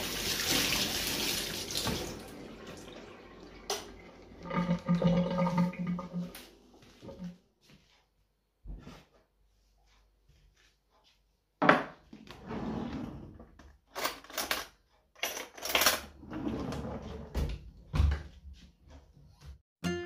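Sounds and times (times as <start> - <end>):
crockery clinking on a counter: 11.6 - 12.0.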